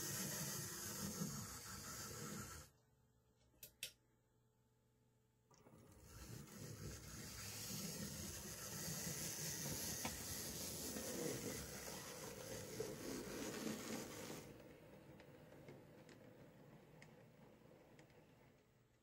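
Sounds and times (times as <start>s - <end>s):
wheels rumbling over rails: 6.0s - 19.0s.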